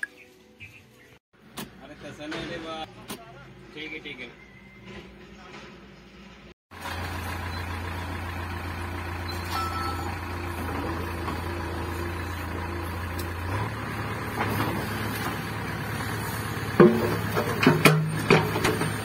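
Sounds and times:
diesel engine running: 6.4s - 19.0s.

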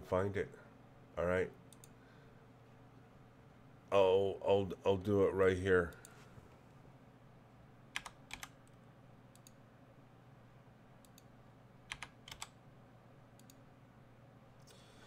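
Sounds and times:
steady low hum: 0.0s - 15.0s
computer keyboard clicks: 8.0s - 9.6s, 11.9s - 12.6s.

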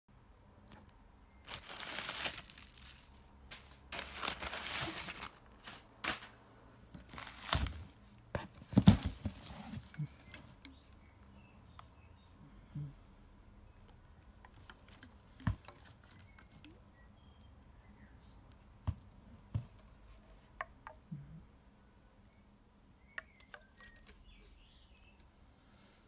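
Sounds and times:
bubble wrap crinkling: 1.4s - 6.4s, 7.0s - 8.0s.

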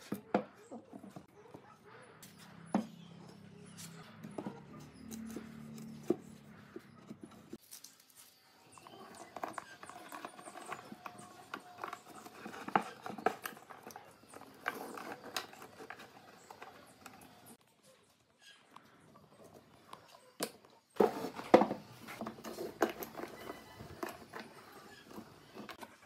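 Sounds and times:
wooden boards being handled: 8.8s - 17.6s, 21.0s - 26.0s.

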